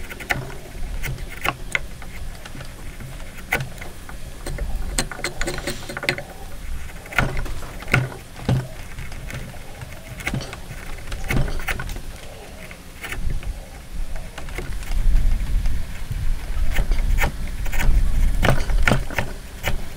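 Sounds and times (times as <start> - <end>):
chisel scraping wood: 0.0 - 13.3
wood fibres cracking: 0.0 - 13.6.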